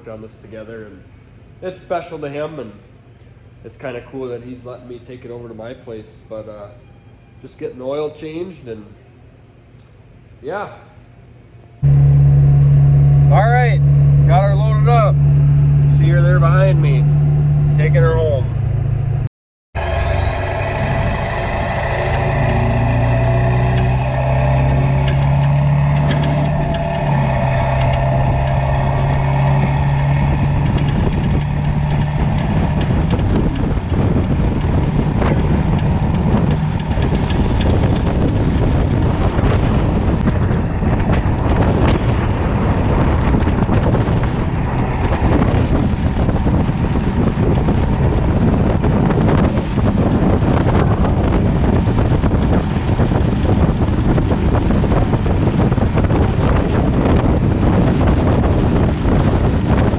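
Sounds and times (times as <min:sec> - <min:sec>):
diesel engine drone: 0:11.1 - 0:59.9
wind rushing over microphone: 0:11.8 - 0:59.9
high whistle: 0:19.8 - 0:22.8.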